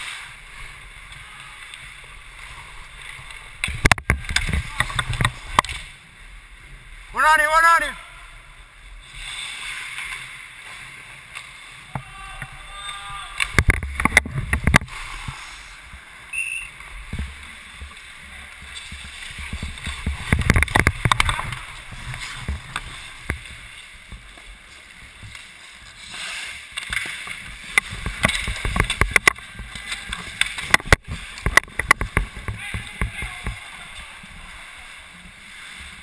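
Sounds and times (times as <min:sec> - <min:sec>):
sticks and puck clacking: 0:01.1 - 0:05.9, 0:13.3 - 0:15.3, 0:17.8 - 0:24.5, 0:25.1 - 0:34.0
camera movement rumble: 0:13.2 - 0:34.5
skate blades scraping ice: 0:17.6 - 0:36.0.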